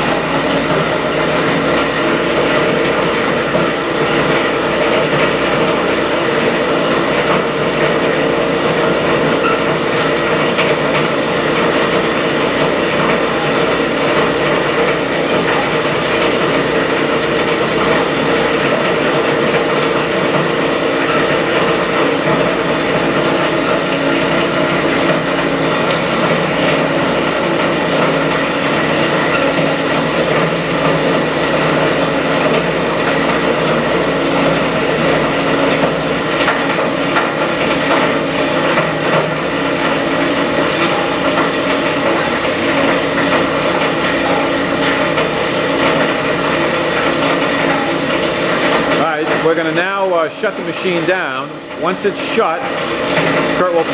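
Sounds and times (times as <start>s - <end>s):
shredder machine grinding: 0.0s - 53.9s.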